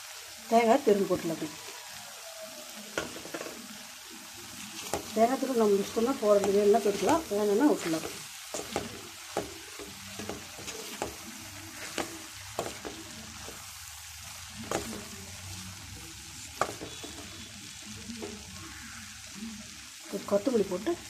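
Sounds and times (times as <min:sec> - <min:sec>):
frying hiss: 0:00.0 - 0:21.0
wooden spatula scraping metal pan: 0:04.8 - 0:13.7.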